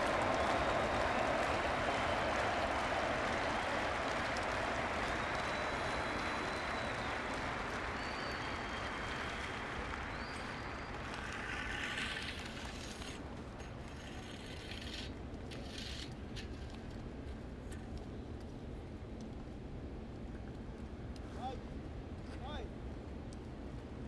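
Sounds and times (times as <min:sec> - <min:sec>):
crowd applauding: 0:00.0 - 0:13.2.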